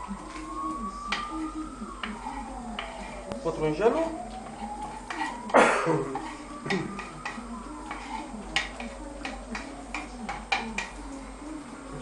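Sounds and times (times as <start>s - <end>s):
knife scraping cutting board: 2.0s - 3.2s, 6.2s - 7.3s, 7.9s - 9.0s
knife and board tapping pan: 6.2s - 11.0s.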